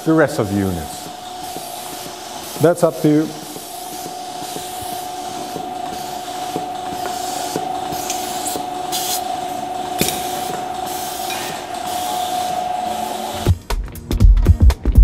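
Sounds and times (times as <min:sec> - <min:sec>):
steady machine whine: 0:00.0 - 0:13.6
pulsators clicking: 0:00.6 - 0:12.6
hiss of air through vacuum: 0:00.8 - 0:13.5.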